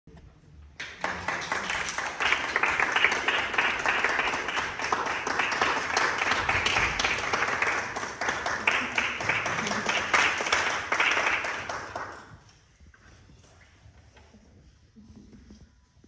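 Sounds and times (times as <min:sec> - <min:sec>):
people applauding: 0:00.7 - 0:12.6.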